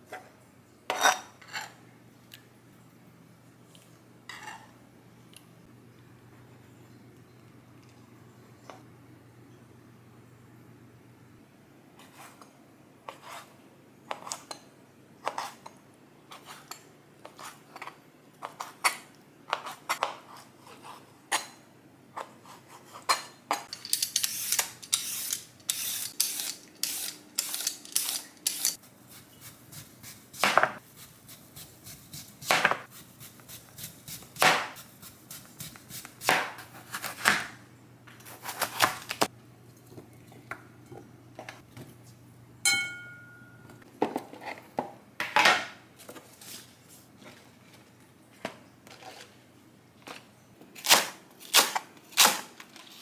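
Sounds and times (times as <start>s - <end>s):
vegetable peeler scraping: 24.0s - 30.4s.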